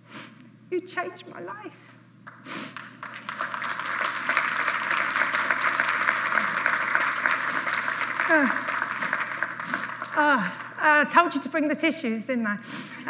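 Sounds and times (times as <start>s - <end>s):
audience applauding: 2.3s - 11.0s.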